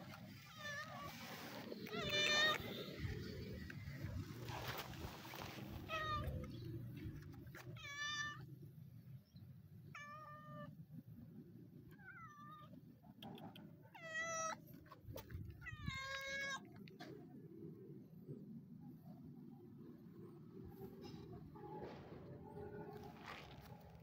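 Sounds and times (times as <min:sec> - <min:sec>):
cat meowing: 0:01.8 - 0:02.7, 0:07.7 - 0:08.5, 0:13.9 - 0:14.6, 0:15.6 - 0:16.7.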